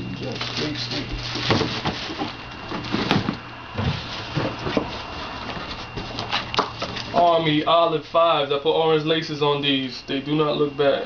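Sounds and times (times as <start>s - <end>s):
cardboard boxes knocking and scraping: 1.3s - 6.9s.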